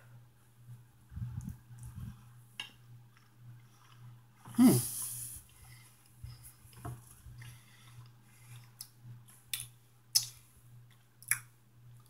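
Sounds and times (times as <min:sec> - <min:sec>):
sticky mouth clicks and smacks: 0:08.7 - 0:11.5.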